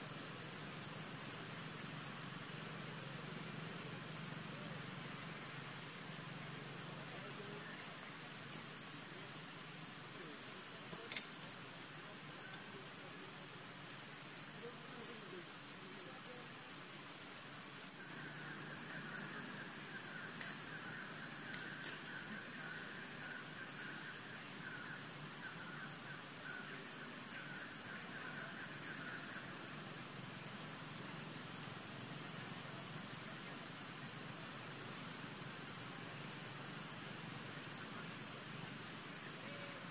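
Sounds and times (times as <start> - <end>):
high-pitched insect drone: 0.0 - 39.9
warbling insect chirr: 0.0 - 39.9.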